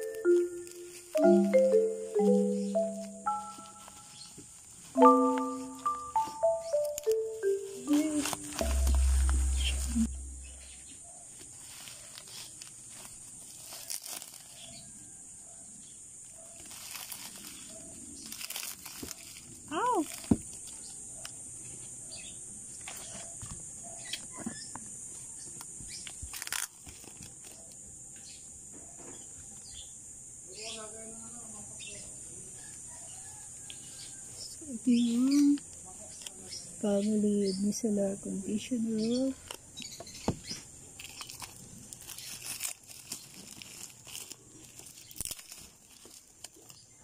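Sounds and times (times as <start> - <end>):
plastic wrapping crinkling: 0.0 - 1.5, 3.3 - 5.6, 6.7 - 10.4, 11.3 - 14.9, 16.4 - 20.9, 26.1 - 27.6, 40.4 - 47.0
insects droning: 0.0 - 47.0.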